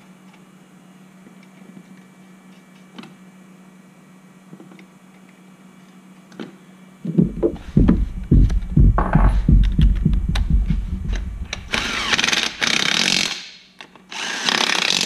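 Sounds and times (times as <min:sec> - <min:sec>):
faint low hum: 0:07.0 - 0:12.6
heavy low thumps: 0:07.1 - 0:12.5.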